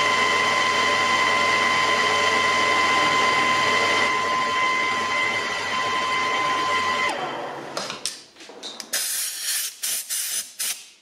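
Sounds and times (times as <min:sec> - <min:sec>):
lathe whining: 0:00.0 - 0:07.8.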